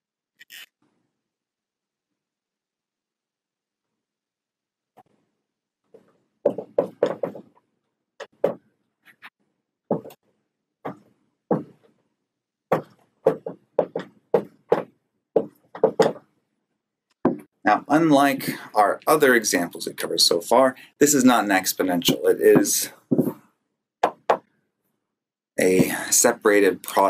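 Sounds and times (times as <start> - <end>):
marker writing on whiteboard: 6.0 - 7.6, 12.7 - 16.3, 22.1 - 24.5.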